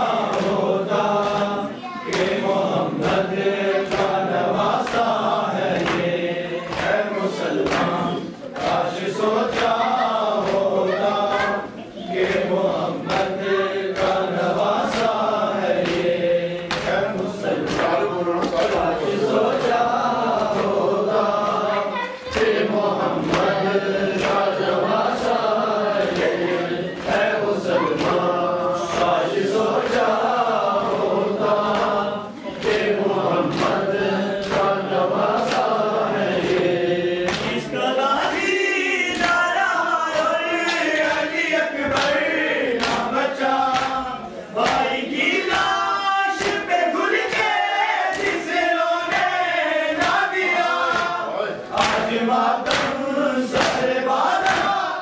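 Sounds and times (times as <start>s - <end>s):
men chanting in unison: 0.0s - 55.0s
hands slapping chests: 0.2s - 8.9s, 12.2s - 20.8s, 32.6s - 35.8s, 36.4s - 37.7s, 40.1s - 45.8s, 50.0s - 51.2s, 51.8s - 54.8s.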